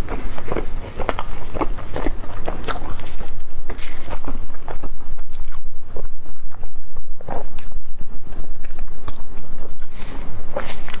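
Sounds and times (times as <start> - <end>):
biting and chewing bread: 0.0 - 11.0
steady low hum: 0.0 - 11.0.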